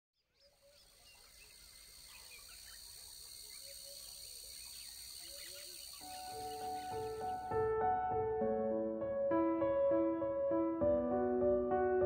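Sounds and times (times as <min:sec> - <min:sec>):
bird chirps and calls: 0:00.2 - 0:07.5
insect drone: 0:00.4 - 0:07.6.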